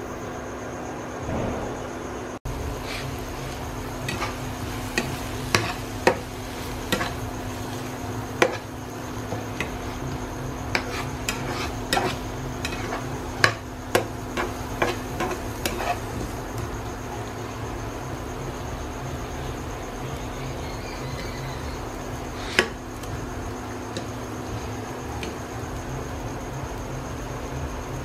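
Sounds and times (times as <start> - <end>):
metal spatula scraping frying pan: 2.6 - 16.2.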